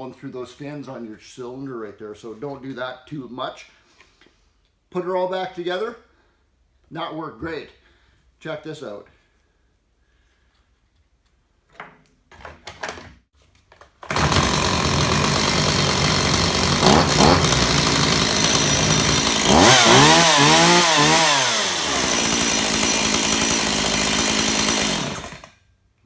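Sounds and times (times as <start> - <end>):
chainsaw running and revving: 14.1 - 25.5.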